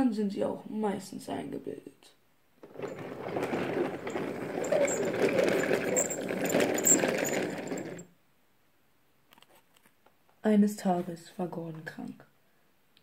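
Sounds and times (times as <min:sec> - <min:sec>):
wooden toy train wheels clattering: 0:02.6 - 0:08.1.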